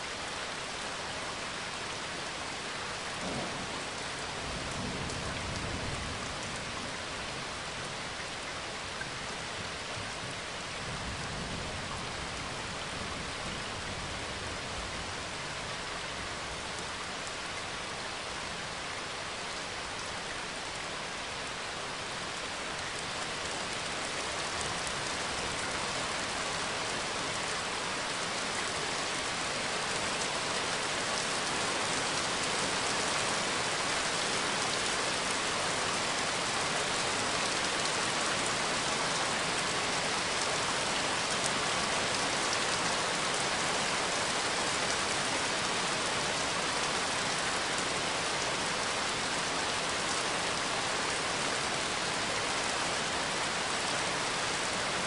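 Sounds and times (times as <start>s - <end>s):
steady rain falling: 0.0s - 55.0s
distant thunder rumble: 3.2s - 6.4s.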